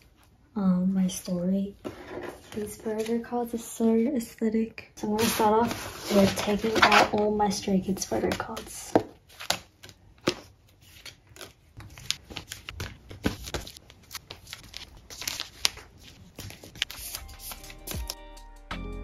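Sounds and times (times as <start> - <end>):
plastic sleeves crinkling: 5.1 - 18.2.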